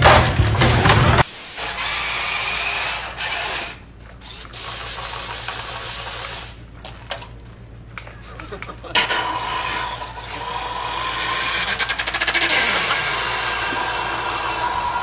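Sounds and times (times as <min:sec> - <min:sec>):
small electric motors whirring: 0:01.6 - 0:06.6, 0:09.0 - 0:15.0.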